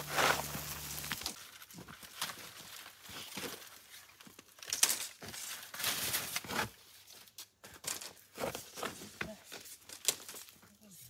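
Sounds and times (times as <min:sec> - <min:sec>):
sharp crackle: 0:00.0 - 0:01.6
rustling and crinkling: 0:00.0 - 0:11.0.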